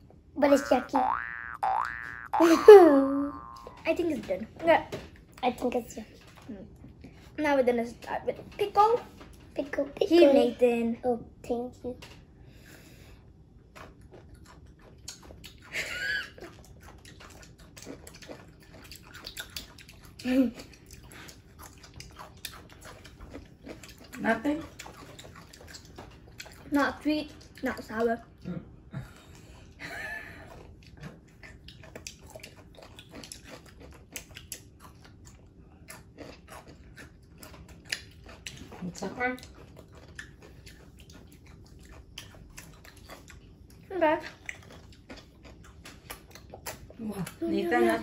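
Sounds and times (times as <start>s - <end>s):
children crunching pickles: 0.4s - 4.3s, 13.6s - 28.3s, 30.4s - 48.0s.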